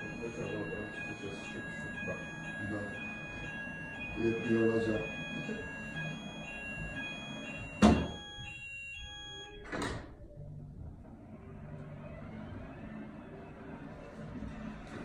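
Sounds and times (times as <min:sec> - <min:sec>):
faint motor whirr: 0:00.0 - 0:09.6, 0:10.4 - 0:15.0
fire alarm warning tone: 0:00.0 - 0:10.4.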